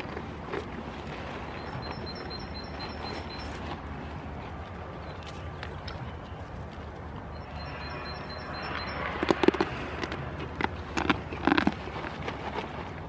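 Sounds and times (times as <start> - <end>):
rapid high chirping: 1.6 - 3.5, 7.4 - 9.2.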